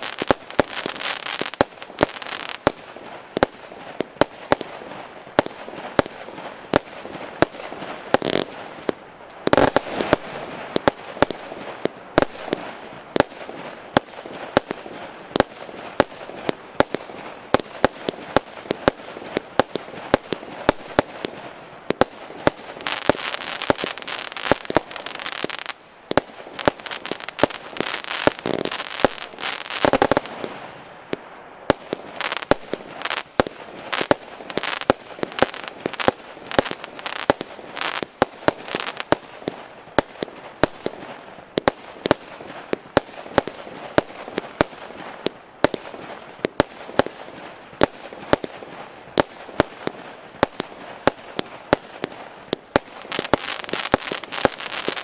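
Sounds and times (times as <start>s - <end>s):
fireworks crackling: 0.0s - 55.0s
fireworks battery firing: 21.9s - 30.6s, 31.7s - 39.2s, 45.6s - 55.0s.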